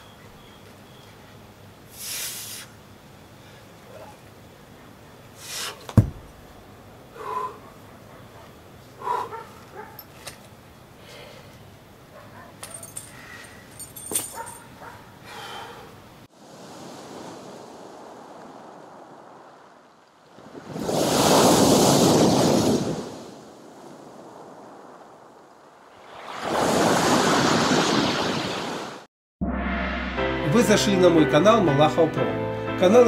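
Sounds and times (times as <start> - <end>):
wave splashing against pier: 16.3 - 19.6
surf on pebble beach: 16.3 - 29.1.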